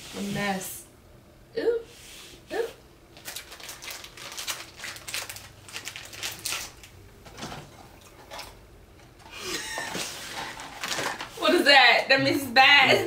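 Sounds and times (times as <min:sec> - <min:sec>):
plastic wrapper crinkling: 0:03.2 - 0:07.0.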